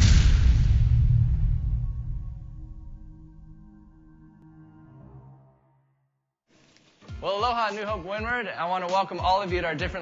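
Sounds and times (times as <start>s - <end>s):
deep low boom: 0.0s - 4.0s.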